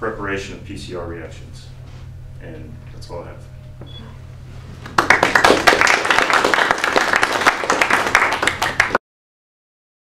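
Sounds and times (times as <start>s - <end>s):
audience applauding: 4.8s - 9.0s.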